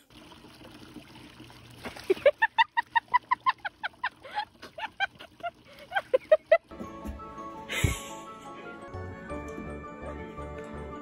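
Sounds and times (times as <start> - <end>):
water splashing: 0.0 - 6.5.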